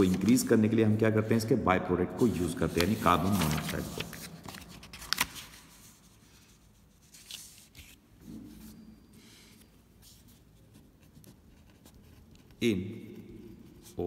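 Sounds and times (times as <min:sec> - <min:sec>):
paper rustling: 0:00.0 - 0:00.7, 0:02.3 - 0:12.6
paper crackling: 0:02.5 - 0:08.0
pen scratching on paper: 0:10.6 - 0:12.6.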